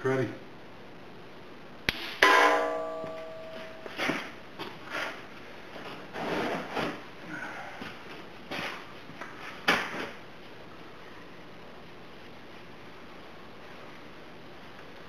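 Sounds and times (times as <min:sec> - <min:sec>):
hammer striking metal: 0:01.9 - 0:04.0.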